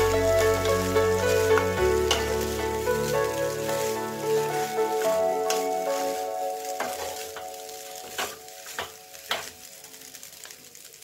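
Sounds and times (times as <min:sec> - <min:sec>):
rice sizzling in a pan: 0:00.0 - 0:11.0
utensils knocking against pan: 0:02.0 - 0:02.4, 0:06.8 - 0:09.6.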